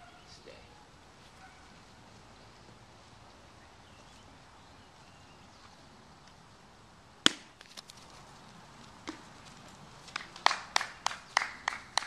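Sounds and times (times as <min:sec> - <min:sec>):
plastic cone smack: 0:07.2 - 0:07.8.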